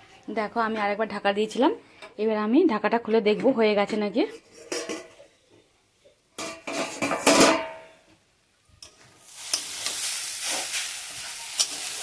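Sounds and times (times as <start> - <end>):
metal lid clattering: 4.6 - 5.2, 6.4 - 7.8
beetroot sizzling in pan: 9.2 - 12.0.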